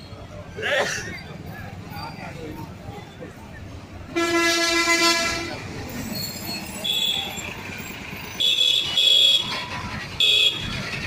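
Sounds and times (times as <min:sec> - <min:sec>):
street traffic: 0:00.0 - 0:11.0
shrill vehicle horn beeps: 0:04.1 - 0:07.5.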